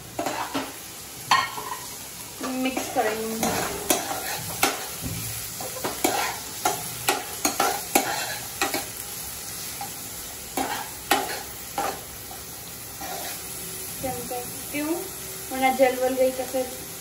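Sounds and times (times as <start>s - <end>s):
vegetables sizzling in oil: 0.0s - 17.0s
metal spoon scraping pan: 0.2s - 0.7s, 1.3s - 5.0s, 5.6s - 8.9s, 10.6s - 12.0s, 13.0s - 13.5s.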